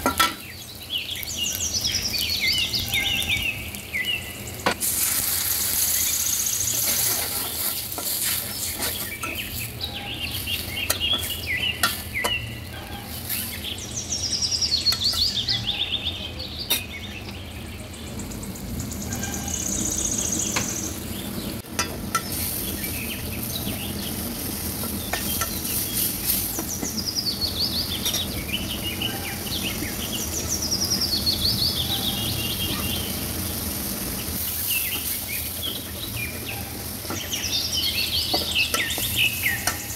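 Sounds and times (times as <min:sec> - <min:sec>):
onions sizzling in pan: 0:00.0 - 0:39.9
bird singing trilled phrases: 0:00.4 - 0:04.6, 0:08.5 - 0:21.6, 0:25.0 - 0:33.2, 0:34.5 - 0:39.9
metal spatula clicking on pan: 0:10.9 - 0:12.4.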